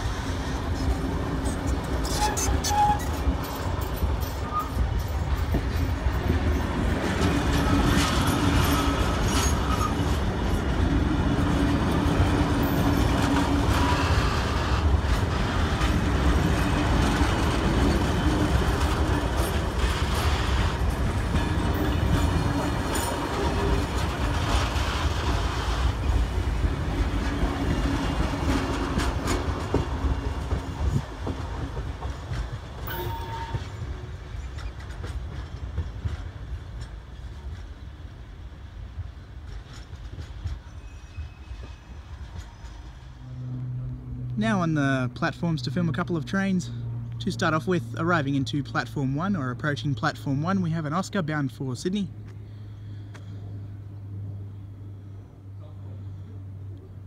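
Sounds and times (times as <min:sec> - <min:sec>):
train wheels clacking over rail joints: 0:00.0 - 0:38.1, 0:39.1 - 0:43.2.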